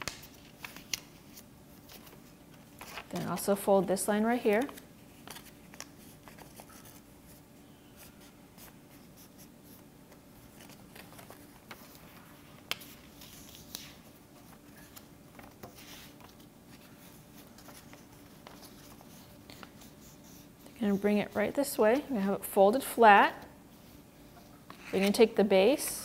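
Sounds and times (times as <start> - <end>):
paper rustling and creasing: 0.0 - 3.7, 4.3 - 7.4, 8.0 - 22.1, 24.4 - 25.9
low steady hum: 0.0 - 26.0.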